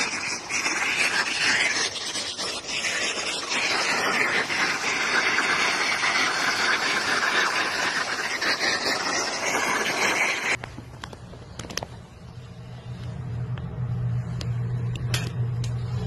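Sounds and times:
water splashing from drainpipes: 0.0s - 10.6s.

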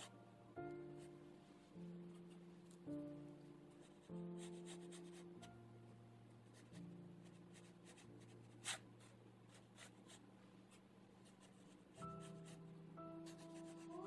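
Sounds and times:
quiet held chords music: 0.0s - 14.0s
brush scratching on paper: 3.7s - 5.4s, 6.5s - 14.0s.

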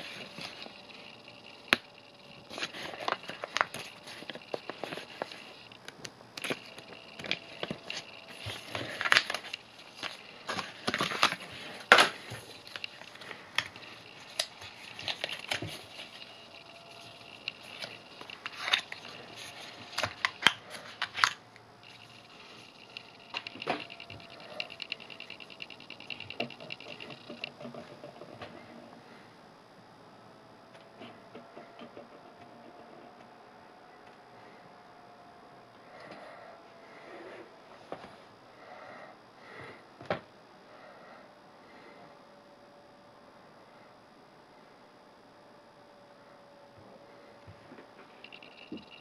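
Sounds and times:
paper packaging rustling: 2.5s - 5.7s, 6.4s - 25.4s.

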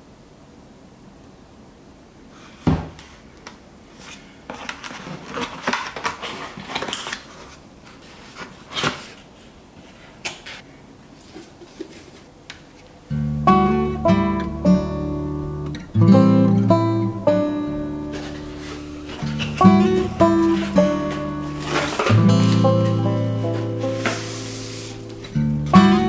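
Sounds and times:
cardboard scraping and rustling: 3.9s - 10.6s, 11.2s - 12.9s, 18.0s - 25.9s
acoustic guitar music: 13.1s - 26.0s
box thump: 18.1s - 24.5s.

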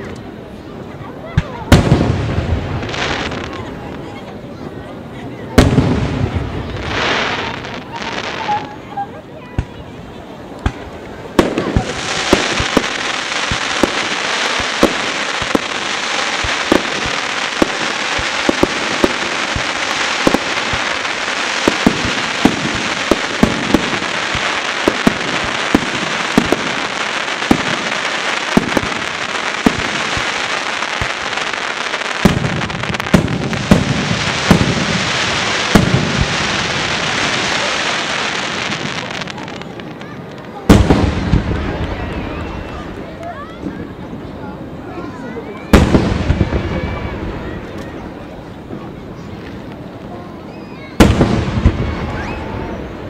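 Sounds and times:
fireworks crackling and hissing: 0.0s - 53.0s
deep firework booms: 1.4s - 4.1s, 5.5s - 8.5s, 10.6s - 43.0s, 45.7s - 47.7s, 50.8s - 53.0s.

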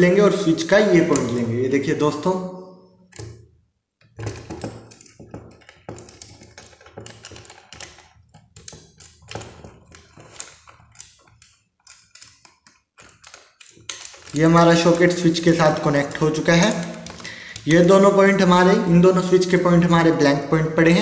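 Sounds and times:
small clicks and taps of wiring: 4.0s - 14.4s.

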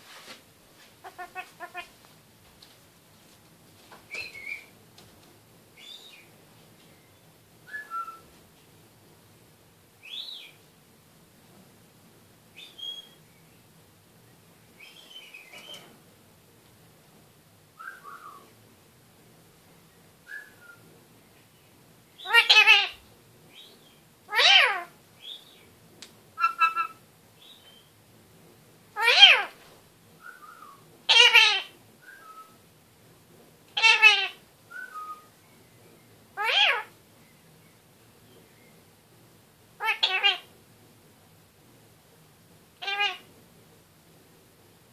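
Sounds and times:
bird chattering: 1.0s - 1.9s, 26.4s - 27.0s
parrot drawn-out calls: 1.0s - 1.9s, 22.2s - 23.0s, 24.3s - 24.9s, 26.4s - 27.0s, 29.0s - 29.6s, 31.1s - 31.7s, 33.8s - 34.4s, 36.4s - 37.0s, 39.8s - 40.5s, 42.8s - 43.3s.

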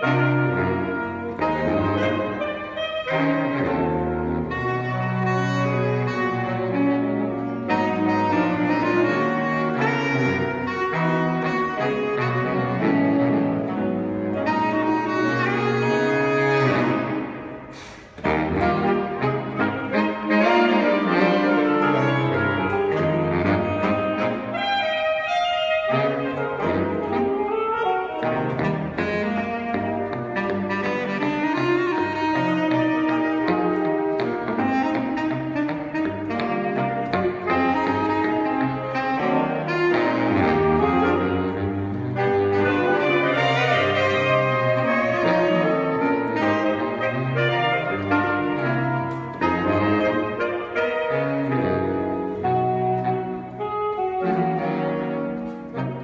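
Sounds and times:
saxophone quartet playing: 0.0s - 56.0s.

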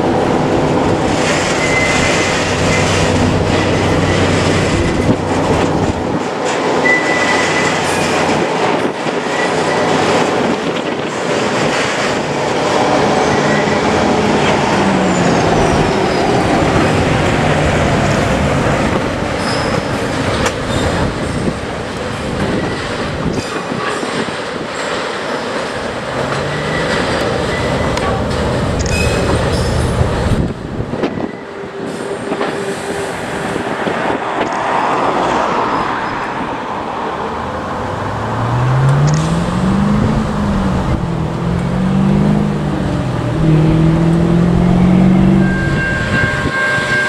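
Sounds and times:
train wagons rolling on rails: 0.0s - 47.0s
wheel squeals: 1.3s - 5.2s, 6.8s - 8.2s, 19.4s - 21.5s, 24.8s - 30.0s, 44.7s - 47.0s
low engine hum: 37.3s - 45.9s.

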